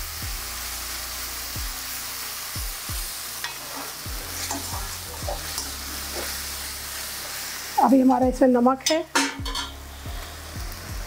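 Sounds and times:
onions sizzling in hot oil: 0:00.0 - 0:11.0
metal spatula stirring in pan: 0:03.4 - 0:06.6, 0:08.8 - 0:10.3.

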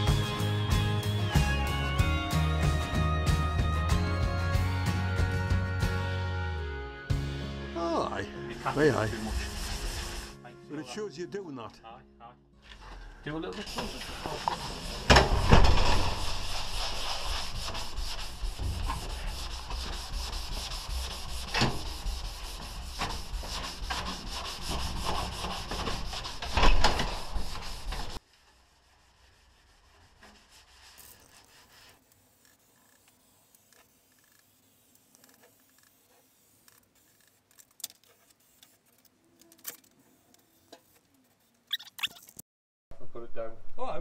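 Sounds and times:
abrasive pad scrubbing steel panel: 0:08.6 - 0:10.4, 0:13.7 - 0:37.4.

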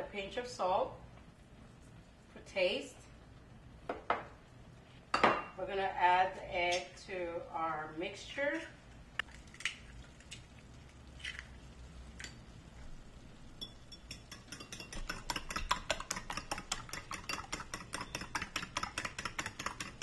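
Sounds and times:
utensil clinking against bowl: 0:13.6 - 0:20.0.

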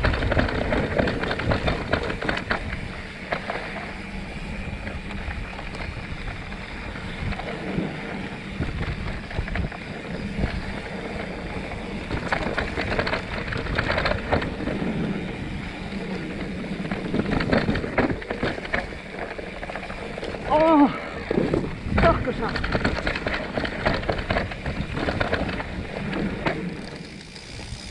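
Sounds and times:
bike clattering and rattling: 0:00.0 - 0:27.9
bike tyres rolling over dirt: 0:00.0 - 0:27.9
wind buffeting microphone: 0:00.0 - 0:27.9.

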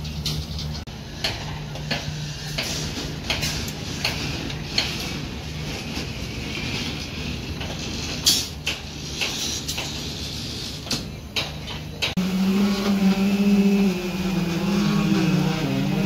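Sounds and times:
engine drone: 0:12.0 - 0:16.0
low drone: 0:12.2 - 0:16.0.

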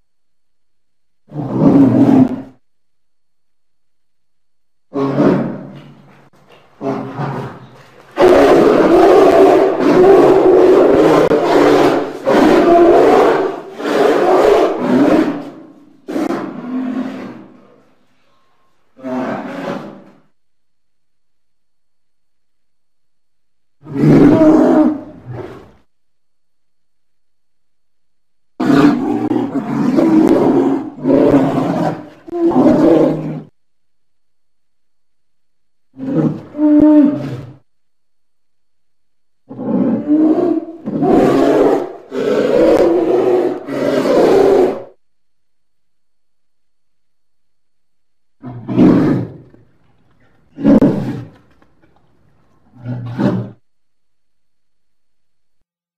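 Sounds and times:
polar bear growling: 0:01.3 - 0:02.6, 0:06.8 - 0:17.8, 0:19.0 - 0:20.2, 0:28.6 - 0:33.5, 0:35.9 - 0:37.6, 0:39.5 - 0:45.0, 0:48.4 - 0:51.5, 0:52.6 - 0:53.6.

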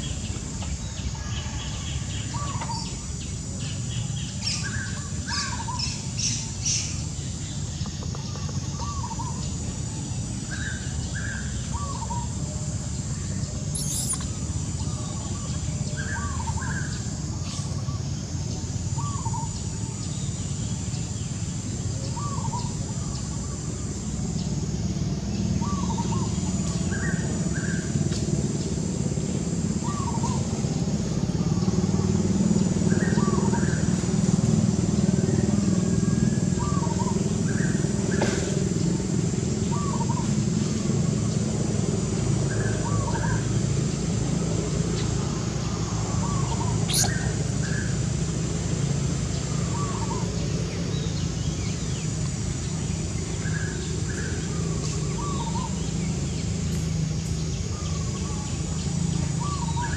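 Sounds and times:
bird chirping: 0:13.3 - 0:17.1, 0:46.2 - 0:47.8.

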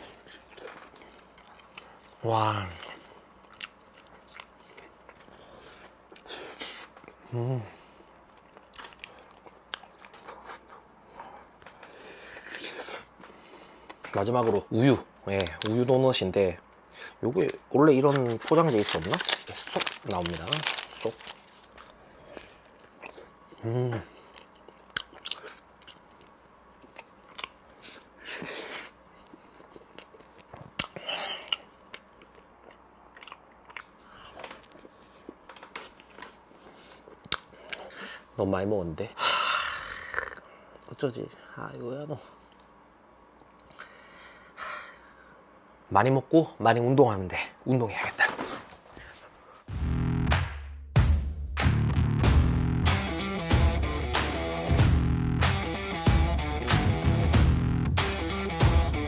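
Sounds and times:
chewing crunchy pastry: 0:00.0 - 0:13.2, 0:17.4 - 0:38.3
wet mouth clicks: 0:37.2 - 0:37.8.

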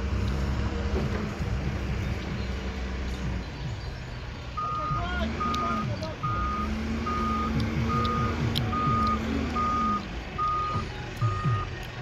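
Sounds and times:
diesel engine running: 0:00.0 - 0:12.0
reversing alarm beeping: 0:04.6 - 0:11.7.

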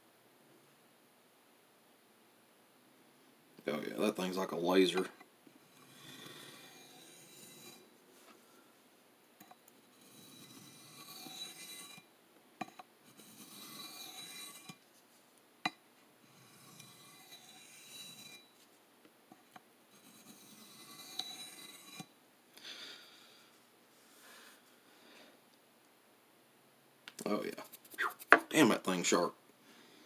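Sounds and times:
knife scraping on sharpening plate: 0:05.0 - 0:07.8, 0:09.8 - 0:14.8, 0:16.3 - 0:18.5, 0:19.9 - 0:22.1.

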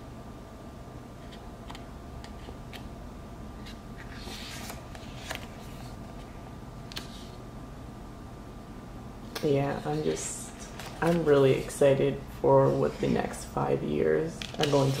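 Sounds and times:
faint hum: 0:00.0 - 0:15.0
book pages turning: 0:03.6 - 0:06.3, 0:06.9 - 0:07.4, 0:09.7 - 0:11.8, 0:14.5 - 0:15.0.

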